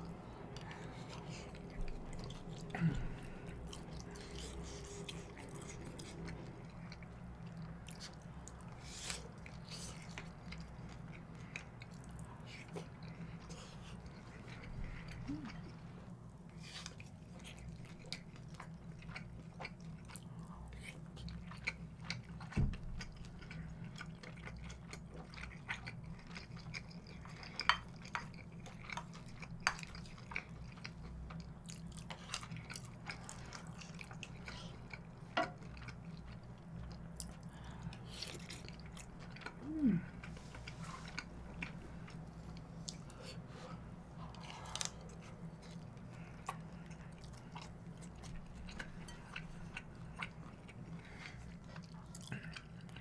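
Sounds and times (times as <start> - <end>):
close chewing of rice: 0.0 - 53.0
faint low hum: 0.0 - 53.0.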